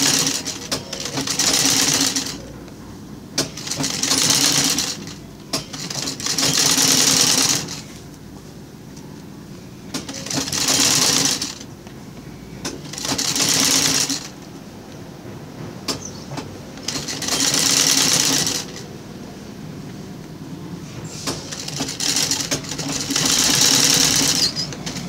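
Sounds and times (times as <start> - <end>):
sewing machine stitching: 0.0 - 2.4, 3.4 - 7.9, 9.9 - 11.7, 12.6 - 14.4, 15.9 - 18.9, 21.2 - 25.0.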